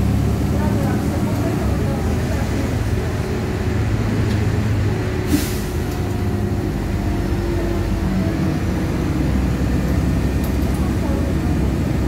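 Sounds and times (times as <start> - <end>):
bus diesel engine droning: 0.0 - 12.0
compressed air hiss: 5.3 - 5.8.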